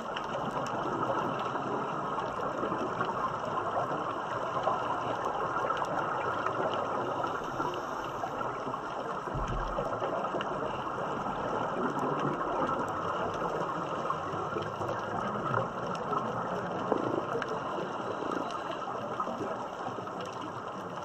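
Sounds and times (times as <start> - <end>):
exhaled bubbles: 0.0 - 21.0
faint crackling clicks: 0.0 - 21.0
underwater rushing hiss: 6.6 - 9.6
low thump: 9.3 - 9.9.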